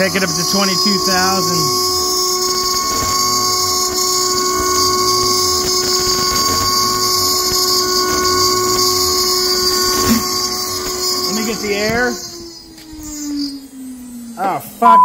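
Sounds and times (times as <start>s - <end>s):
router spindle high whine cutting: 0.0s - 14.8s
low hum rising and falling: 0.0s - 15.0s.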